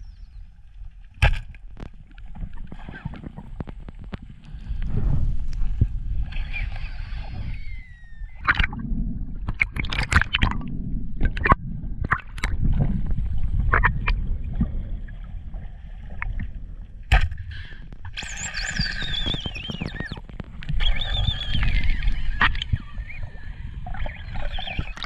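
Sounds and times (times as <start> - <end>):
high wavering whistle: 7.3 - 8.4, 18.2 - 20.2, 20.8 - 25.0.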